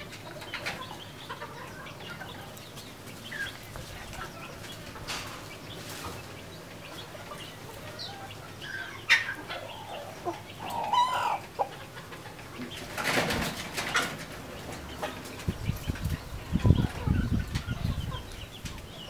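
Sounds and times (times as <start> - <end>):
chickens clucking: 0.0 - 19.0
wings flapping: 12.8 - 14.3.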